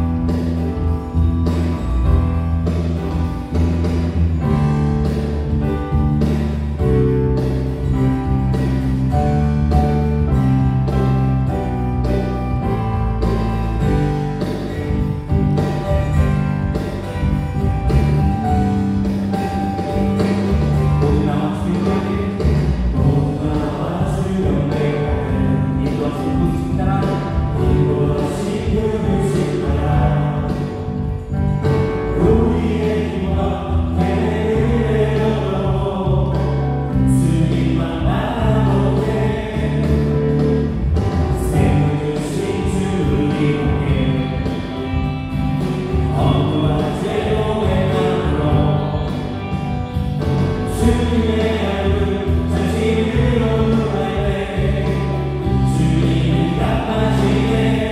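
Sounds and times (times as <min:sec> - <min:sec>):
gospel band playing: 0:00.0 - 0:57.9
voices singing together: 0:19.4 - 0:30.9, 0:32.2 - 0:40.4, 0:41.4 - 0:44.9, 0:46.0 - 0:49.5, 0:50.6 - 0:57.9.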